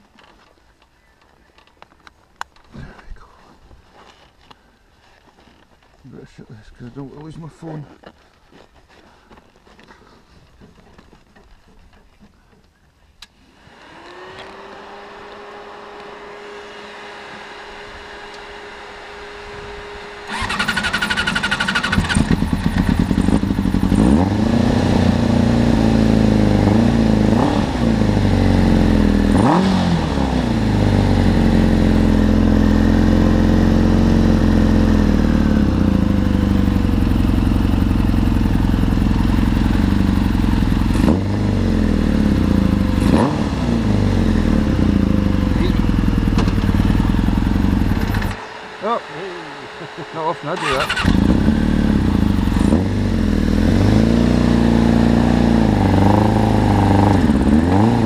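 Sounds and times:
motorcycle engine starting and revving: 0:13.5 - 0:58.0.

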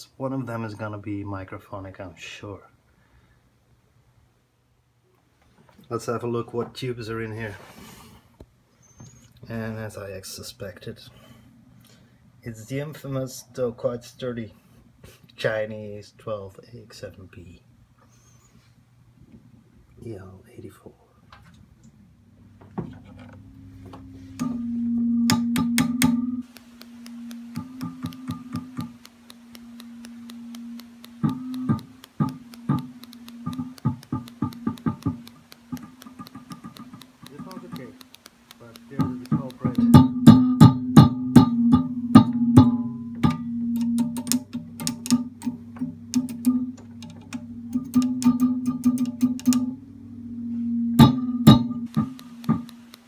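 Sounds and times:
amplifier steady pitched tone: 0:22.2 - 0:53.0
pitched ringing hum: 0:22.6 - 0:38.0, 0:38.6 - 0:53.0
chopstick tapping tubes clicks: 0:25.3 - 0:40.5, 0:43.8 - 0:49.8, 0:51.0 - 0:53.0.

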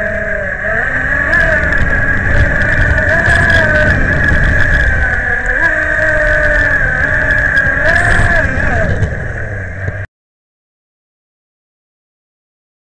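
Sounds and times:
speedboat motor whine: 0:00.0 - 0:10.1
water and hull rumble: 0:00.0 - 0:10.1.

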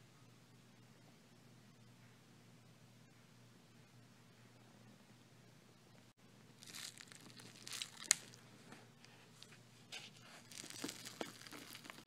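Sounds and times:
fabric rustling and crackling: 0:06.6 - 0:08.4, 0:10.1 - 0:12.0.

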